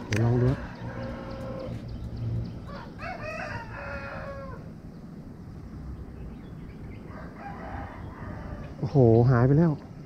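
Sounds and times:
rooster crowing: 0:00.3 - 0:01.7, 0:02.6 - 0:04.7, 0:07.1 - 0:08.8.

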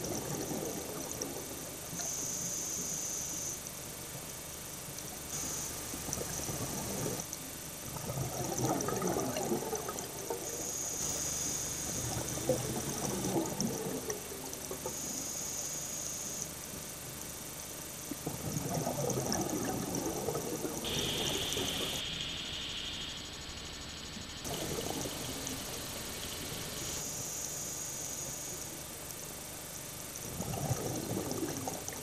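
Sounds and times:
faint steady hiss: 0:00.0 - 0:32.0
thin high whine: 0:01.9 - 0:03.7, 0:05.3 - 0:07.4, 0:09.9 - 0:17.6, 0:20.2 - 0:29.1
regulator bubble bursts: 0:05.4 - 0:11.2, 0:11.8 - 0:15.0, 0:17.6 - 0:27.2, 0:30.0 - 0:32.0.

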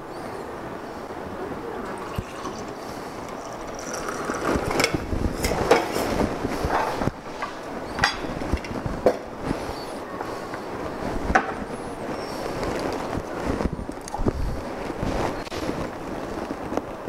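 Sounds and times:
cocktail poured over ice: 0:01.8 - 0:05.1
tools and glassware clattering: 0:08.0 - 0:09.2.

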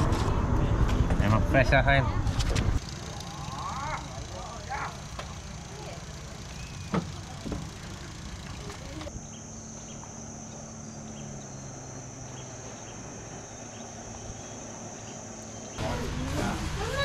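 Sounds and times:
high-pitched insect drone: 0:02.8 - 0:12.4.

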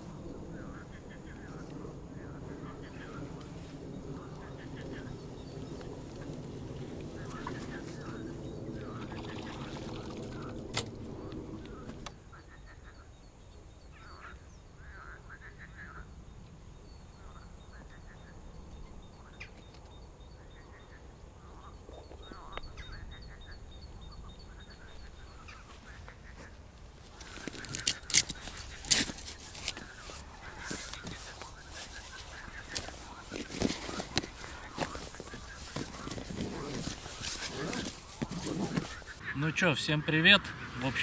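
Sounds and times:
low droning hum: 0:00.0 - 0:12.2
waterfowl calling: 0:04.1 - 0:13.1, 0:24.4 - 0:41.0.

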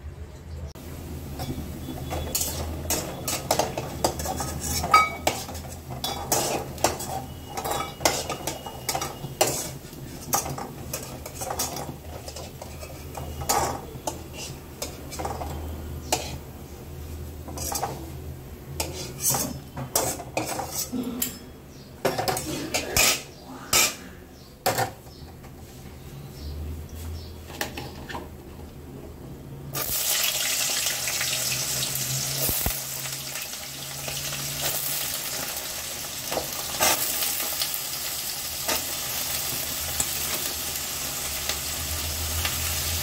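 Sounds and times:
metal ladle clinking and scraping: 0:01.4 - 0:16.4, 0:18.8 - 0:21.5.

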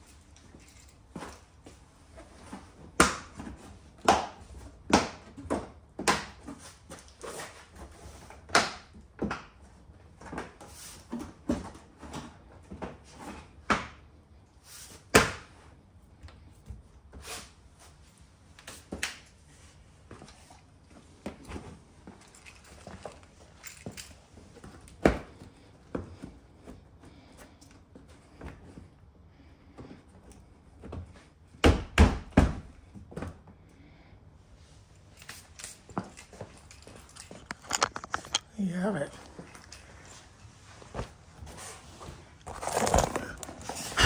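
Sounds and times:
plastic parts clicking and knocking: 0:37.2 - 0:38.5.

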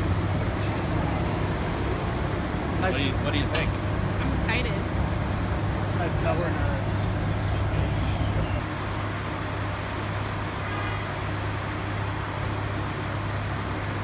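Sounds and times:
heavy diesel machinery running: 0:00.0 - 0:14.0.

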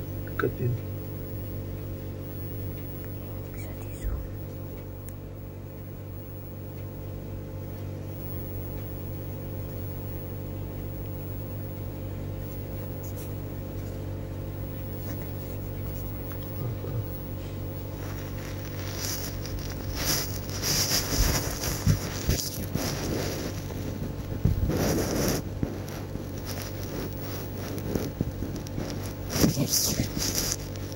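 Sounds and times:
steady low hum: 0:00.0 - 0:30.9
microphone rubbing against fur: 0:12.3 - 0:30.9.

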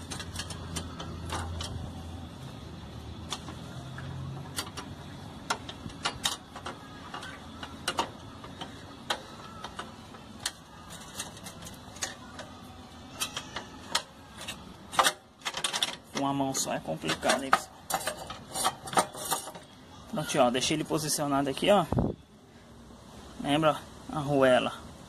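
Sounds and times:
clicks and knocks of metal parts: 0:00.0 - 0:02.1, 0:03.1 - 0:19.8.

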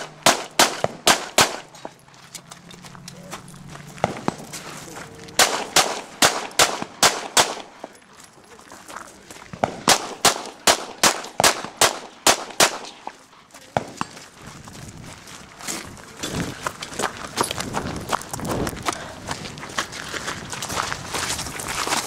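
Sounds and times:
gunshots: 0:00.0 - 0:01.8, 0:05.4 - 0:07.8, 0:09.6 - 0:13.1.

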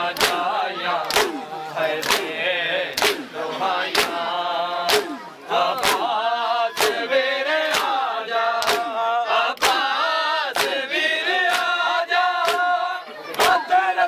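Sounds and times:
men chanting a lament: 0:00.0 - 0:14.0
hands slapping chests: 0:00.2 - 0:01.4, 0:02.0 - 0:02.3, 0:02.9 - 0:03.3, 0:03.9 - 0:04.2, 0:04.9 - 0:05.2, 0:05.8 - 0:06.1, 0:06.7 - 0:07.0, 0:07.6 - 0:08.0, 0:08.6 - 0:09.0, 0:09.6 - 0:09.9, 0:10.5 - 0:10.8, 0:11.5 - 0:11.8, 0:12.4 - 0:12.7, 0:13.3 - 0:13.7.

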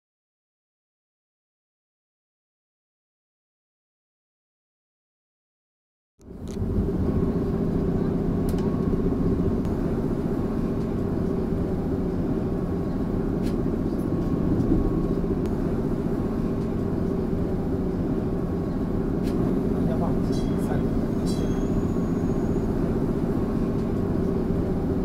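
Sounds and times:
streetcar rumble and hum: 0:06.2 - 0:25.0.

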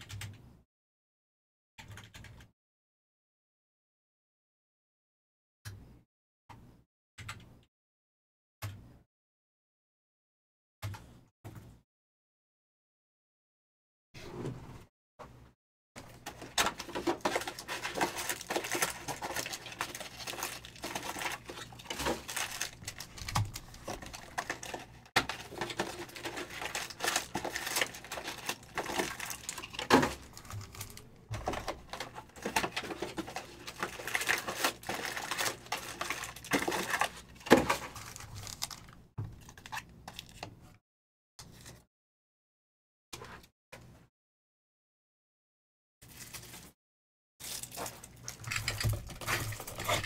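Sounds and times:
foil card packs crinkling: 0:16.0 - 0:40.4, 0:47.4 - 0:50.0.

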